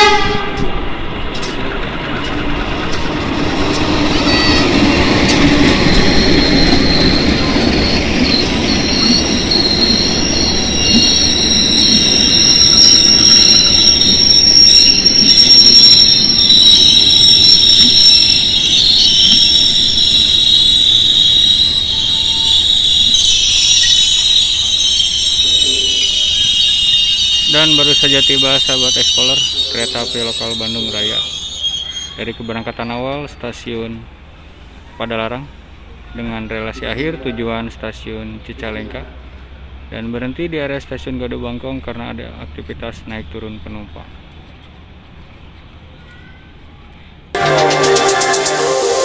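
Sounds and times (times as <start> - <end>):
steel wheel squeal: 4.1 - 33.4.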